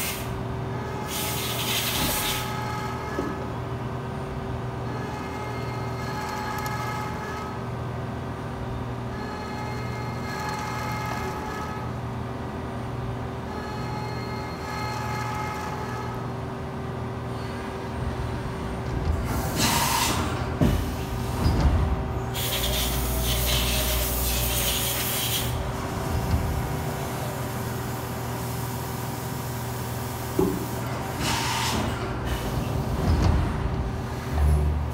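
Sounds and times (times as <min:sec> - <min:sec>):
coolant hissing bursts: 0:22.4 - 0:25.6.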